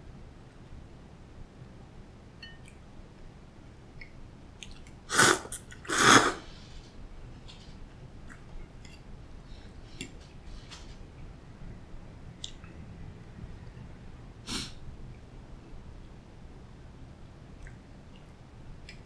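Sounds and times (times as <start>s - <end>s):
quiet chewing: 4.0s - 6.2s, 7.5s - 11.0s, 17.6s - 19.0s
slurping noodles: 5.1s - 6.5s.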